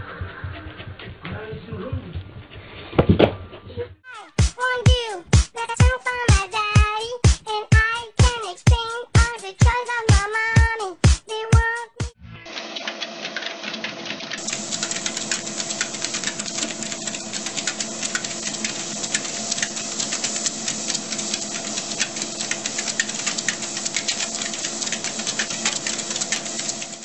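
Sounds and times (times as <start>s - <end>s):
treadmill motor hum: 12.5s - 27.0s.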